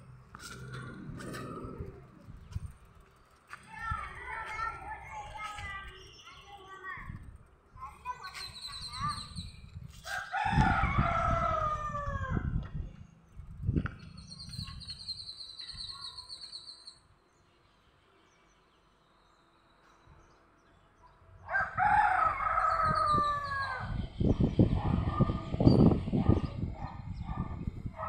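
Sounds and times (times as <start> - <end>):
low microphone rumble: 0.0 - 5.9, 8.9 - 15.2, 21.7 - 28.0
rooster crowing: 10.1 - 12.5, 21.5 - 23.9.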